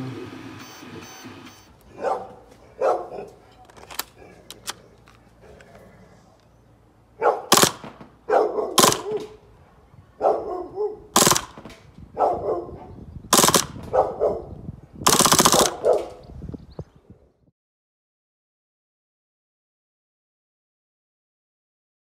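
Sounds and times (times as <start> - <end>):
dogs barking: 1.8 - 4.4, 7.1 - 7.6, 8.2 - 11.1, 12.1 - 13.0, 13.8 - 14.6, 15.5 - 16.2
full-auto burst: 7.5 - 8.0, 8.8 - 9.2, 11.2 - 11.8, 13.3 - 13.9, 15.0 - 16.0
airsoft gun shots: 7.5 - 9.4, 11.1 - 11.9, 13.3 - 14.0, 15.0 - 16.2.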